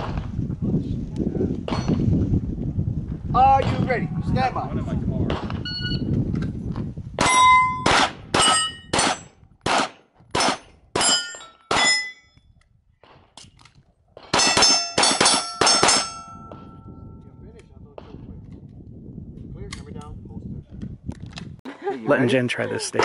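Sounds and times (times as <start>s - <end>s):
pistol shots: 7.2s - 12.0s, 14.2s - 16.2s
steel plates ringing: 11.0s - 12.4s, 14.4s - 16.9s.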